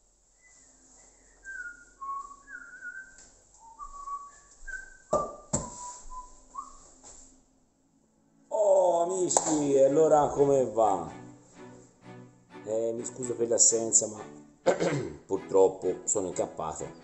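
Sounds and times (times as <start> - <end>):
person whistling a tune: 0.4 - 6.9.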